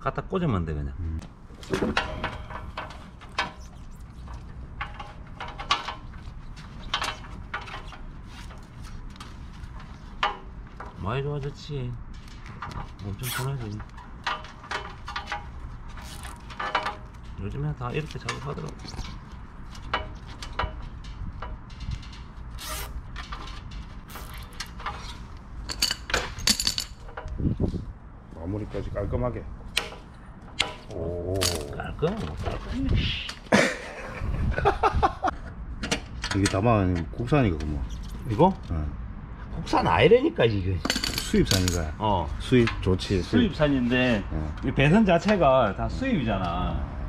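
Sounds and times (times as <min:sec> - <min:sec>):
cable ties rustling on metal plate: 0:01.5 - 0:28.2.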